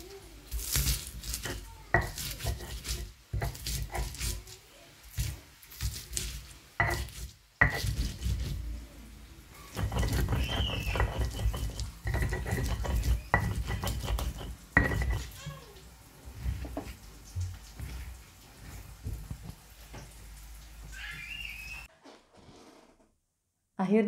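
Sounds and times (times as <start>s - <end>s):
stone pestle grinding chillies: 0.5s - 4.5s, 5.1s - 8.6s, 9.7s - 15.4s
stone-on-stone clacks: 9.7s - 15.4s.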